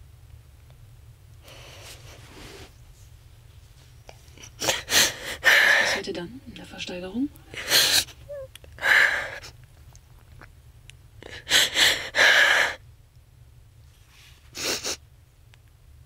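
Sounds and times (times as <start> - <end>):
sniffs: 1.4 - 2.8, 14.0 - 15.0
young woman sobbing: 4.4 - 6.0, 7.5 - 9.5.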